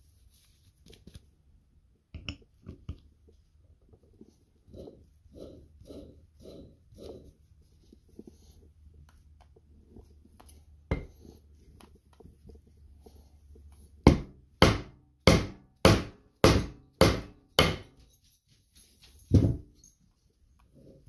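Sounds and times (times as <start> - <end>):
hammer striking wooden block: 14.1 - 17.9.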